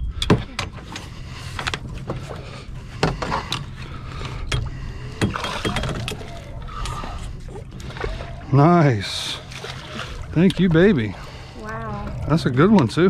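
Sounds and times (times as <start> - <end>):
fish splashing: 4.8 - 13.0.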